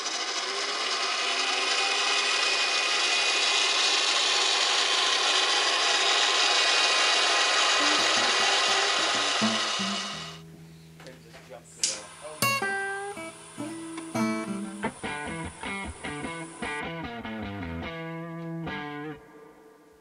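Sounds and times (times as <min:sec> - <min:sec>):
small electric motor and gearbox whirring: 0:00.0 - 0:10.4.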